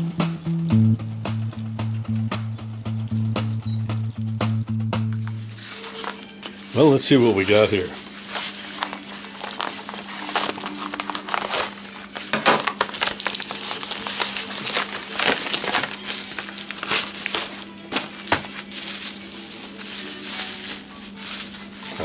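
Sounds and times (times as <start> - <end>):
packing torn open: 5.2 - 22.0
plastic and bubble wrap crinkling: 5.2 - 22.0
scissors cutting packing: 5.2 - 22.0.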